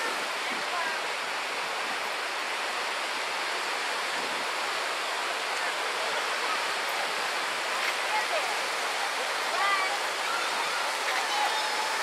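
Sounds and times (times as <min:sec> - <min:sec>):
faint crowd voices: 0:05.5 - 0:12.0.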